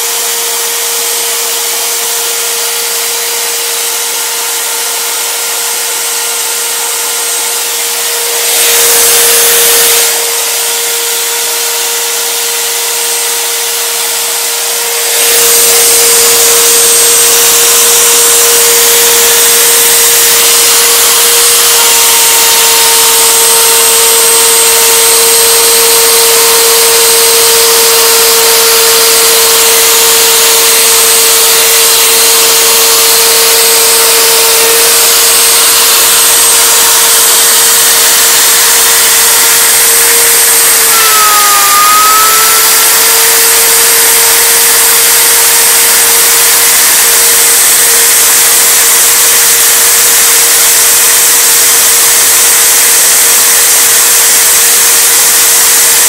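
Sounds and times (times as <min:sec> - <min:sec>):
router whining: 0:00.0 - 0:56.0
higher whine: 0:13.2 - 0:47.2
loud rushing noise: 0:34.2 - 0:46.3.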